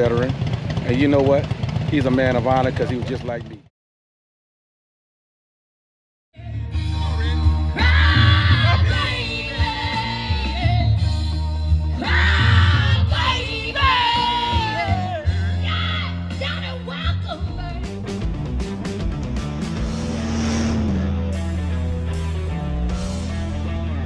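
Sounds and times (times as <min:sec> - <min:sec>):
heavy bass line: 0:17.8 - 0:24.0.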